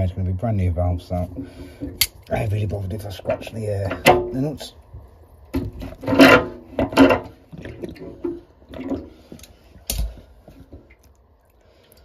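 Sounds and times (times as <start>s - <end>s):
metal nut creaking and rasping: 5.5s - 7.4s.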